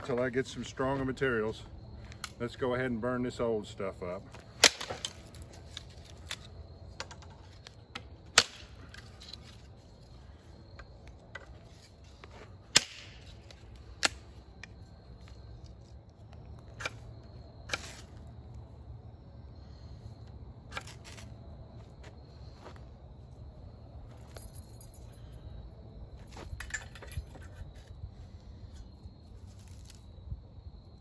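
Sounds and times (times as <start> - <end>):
bamboo snapping: 12.7 - 14.2.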